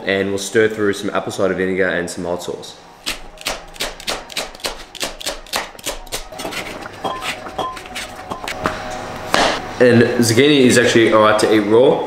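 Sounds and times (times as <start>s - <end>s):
knife chopping celery on board: 3.0s - 8.6s.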